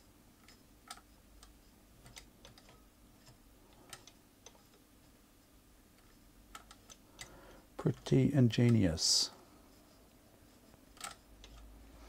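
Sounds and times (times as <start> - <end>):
low room hum: 0.0 - 12.0
sewing machine mechanism clicking: 0.4 - 4.7, 6.0 - 7.3, 10.9 - 11.7.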